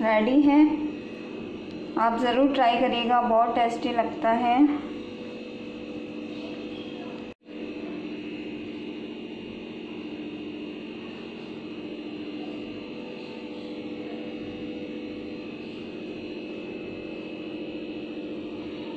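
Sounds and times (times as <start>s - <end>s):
steady tonal hum: 0.0s - 18.9s.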